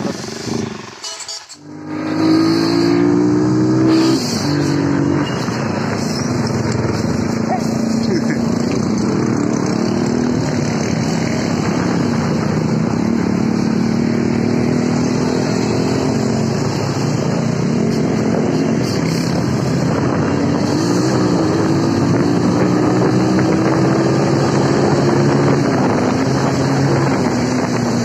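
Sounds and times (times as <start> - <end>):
motorcycle engine running: 0.0 - 2.8, 5.9 - 20.6
wind rushing over microphone: 1.7 - 28.0.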